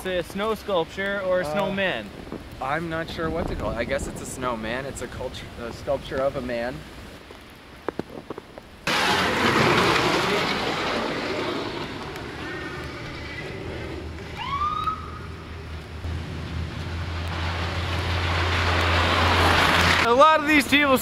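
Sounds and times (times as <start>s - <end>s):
traffic noise: 0.0s - 21.0s
wind rushing: 1.8s - 6.1s
ambulance siren whoops: 14.4s - 15.3s.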